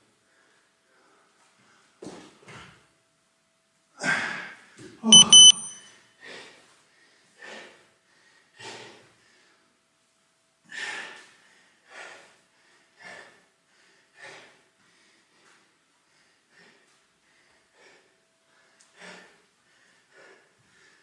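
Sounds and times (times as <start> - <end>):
man breathing heavily: 10.7 - 21.0.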